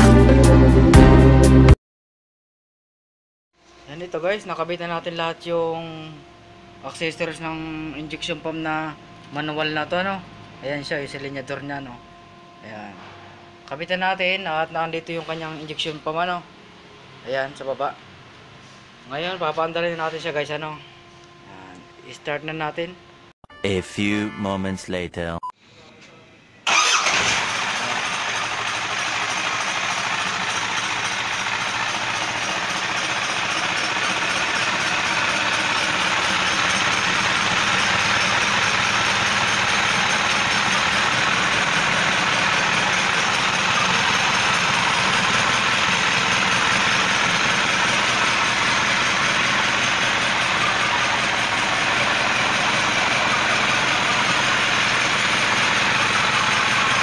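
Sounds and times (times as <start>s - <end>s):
diesel engine running: 26.7s - 57.0s.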